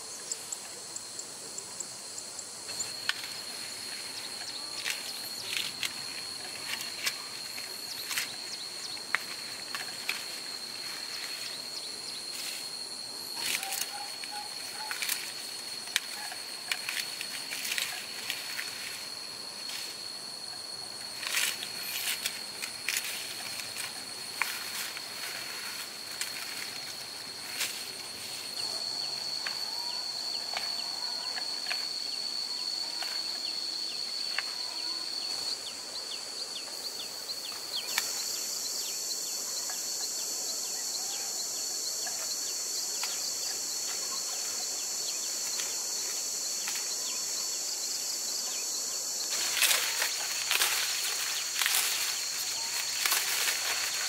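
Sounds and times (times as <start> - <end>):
high-pitched insect drone: 0.0 - 54.0
higher insect hiss: 0.0 - 54.0
dry corn stalks crackling: 2.7 - 20.0, 21.0 - 28.7, 49.2 - 54.0.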